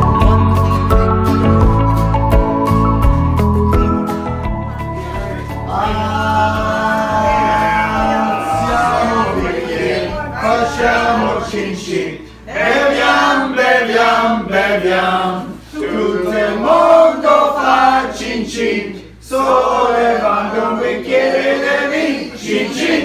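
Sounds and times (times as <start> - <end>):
group of voices singing: 4.9 - 23.0.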